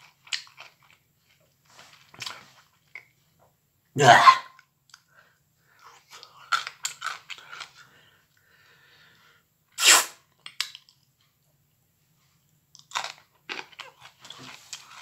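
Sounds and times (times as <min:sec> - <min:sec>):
person chewing crunchy food: 0:00.0 - 0:03.1, 0:05.8 - 0:07.9, 0:12.8 - 0:15.0.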